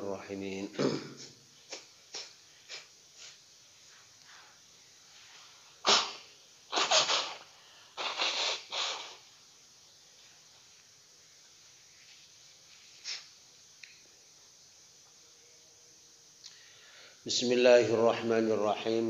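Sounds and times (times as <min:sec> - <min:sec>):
man sneezing: 0:00.7 - 0:03.4, 0:05.8 - 0:09.2
man blowing nose: 0:01.6 - 0:03.4, 0:05.8 - 0:09.3.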